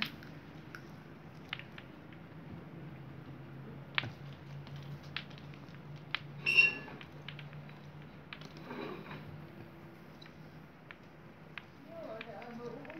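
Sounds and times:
steady low hum: 0.0s - 12.9s
high-pitched squeak: 6.4s - 7.0s.

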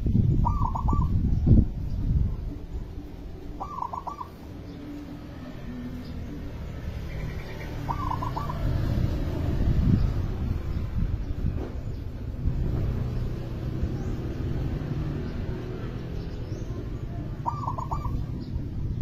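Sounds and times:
dove cooing: 0.4s - 1.2s, 2.5s - 5.1s, 7.5s - 9.1s, 17.3s - 18.6s.

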